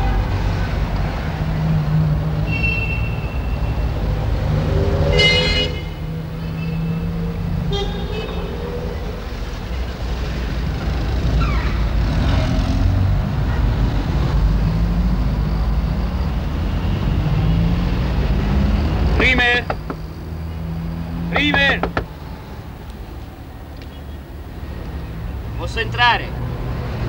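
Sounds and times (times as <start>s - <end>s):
passing cars rumbling: 0.0s - 27.0s
car horn toots: 5.1s - 6.0s, 7.7s - 8.5s.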